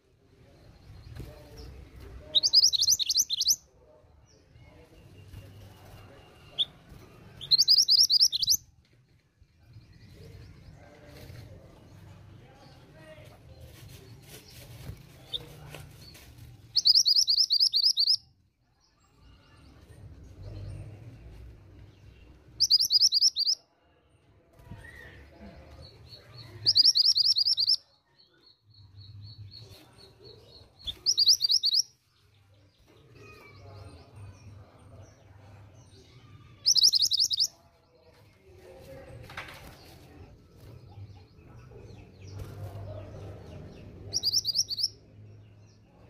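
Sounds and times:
bird trilling: 2.4s - 3.6s, 7.4s - 8.6s, 16.8s - 18.2s, 22.6s - 23.6s, 26.6s - 27.8s, 30.9s - 31.9s, 36.6s - 37.5s, 44.1s - 44.9s.

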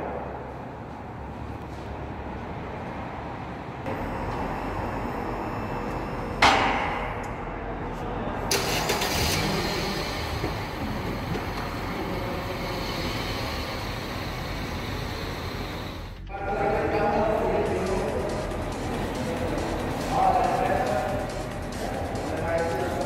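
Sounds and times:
scissor lift power unit running: 3.9s - 7.6s, 8.5s - 23.0s
sharp loud bang: 6.4s - 7.2s.

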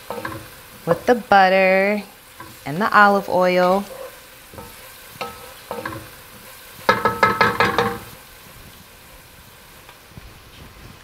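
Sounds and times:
vegetables sizzling in a pot: 0.0s - 11.0s
wooden spoon knocking against pot: 6.9s - 8.1s.

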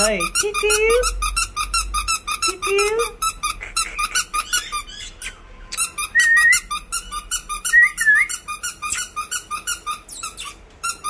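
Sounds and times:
squeaky toy squeaks: 0.0s - 11.0s.

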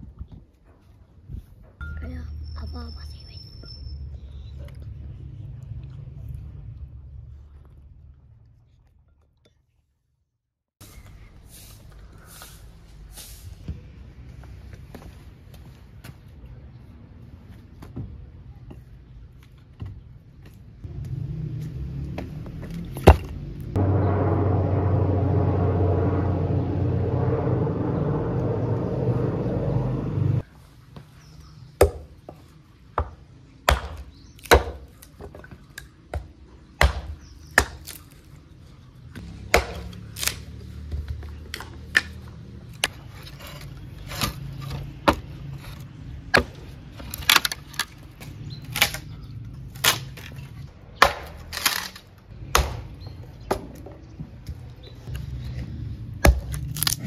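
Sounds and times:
low drone: 23.5s - 30.5s
hatchet chopping wood: 31.8s - 32.1s, 33.0s - 35.3s, 36.1s - 38.0s, 39.2s - 41.2s, 46.3s - 46.6s, 51.0s - 53.9s, 56.2s - 57.0s.

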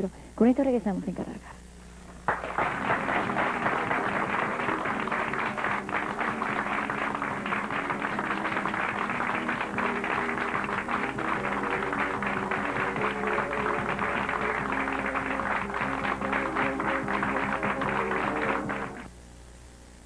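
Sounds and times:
audience applauding: 2.2s - 19.1s
music with held notes: 2.8s - 19.1s.

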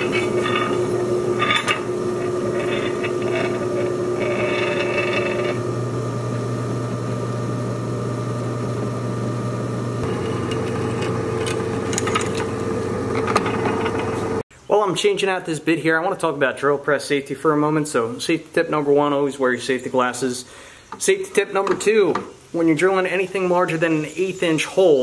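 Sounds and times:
drill bit cutting metal: 0.0s - 5.7s, 10.0s - 14.1s
drill press motor hum: 0.0s - 14.4s.

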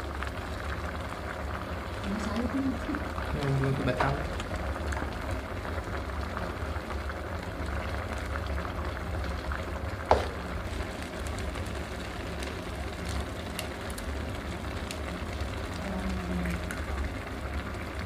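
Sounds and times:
broth bubbling: 0.0s - 18.0s
sharp knock: 10.1s - 10.4s.

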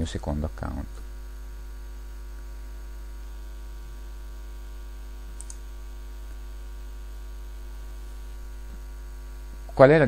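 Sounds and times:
electrical mains hum: 0.0s - 10.0s
computer mouse click: 5.3s - 5.6s.

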